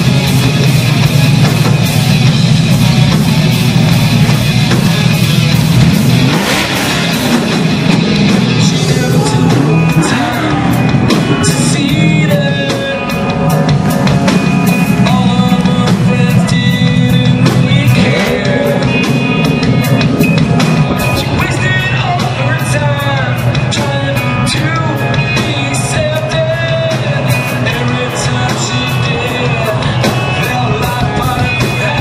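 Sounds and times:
rock music with singing: 0:00.0 - 0:32.0.

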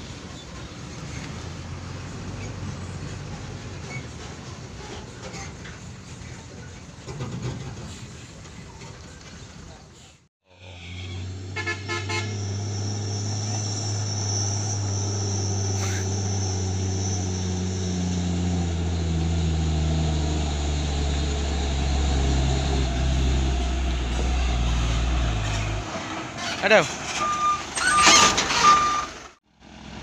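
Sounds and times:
horn toots: 0:10.5 - 0:12.7.

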